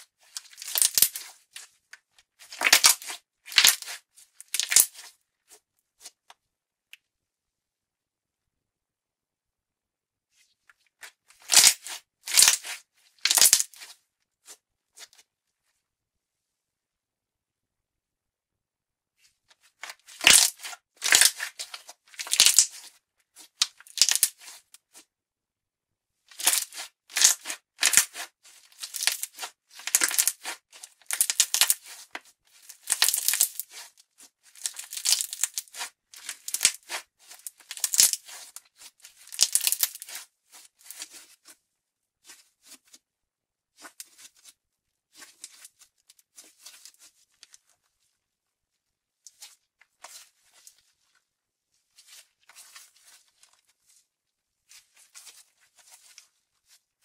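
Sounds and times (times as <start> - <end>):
slime crackling and squishing: 0.2 - 6.2, 11.0 - 14.6, 19.7 - 25.0, 26.3 - 41.5, 43.8 - 44.5, 45.1 - 48.0, 51.8 - 57.0.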